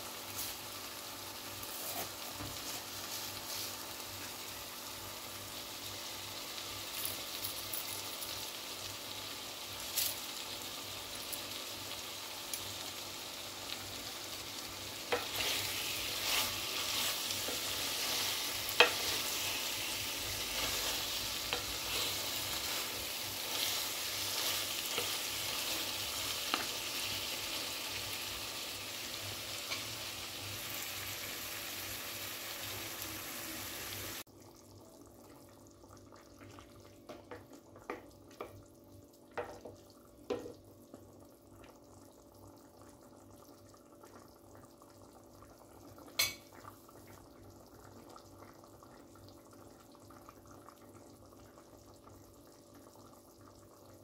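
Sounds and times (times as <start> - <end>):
meat sizzling in a pot: 0.0 - 34.4, 35.1 - 54.0
spoon stirring in a pot: 15.0 - 26.8.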